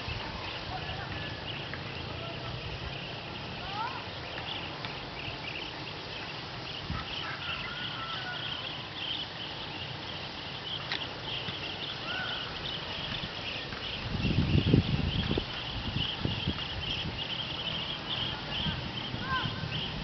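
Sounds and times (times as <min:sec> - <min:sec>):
chorus of chirping animal calls: 0:00.0 - 0:20.0
rising whistled calls: 0:00.0 - 0:20.0.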